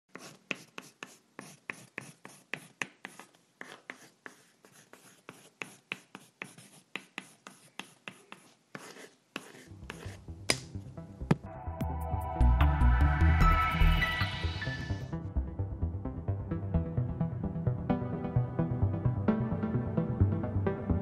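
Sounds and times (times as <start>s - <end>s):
pencil scratching on paper: 0.1s - 10.2s.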